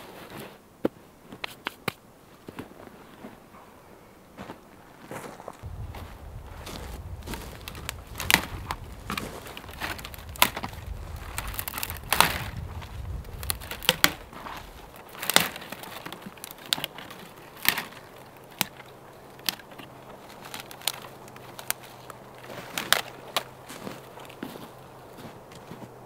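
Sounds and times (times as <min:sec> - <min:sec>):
dry branches snapping: 0:05.6 - 0:26.0.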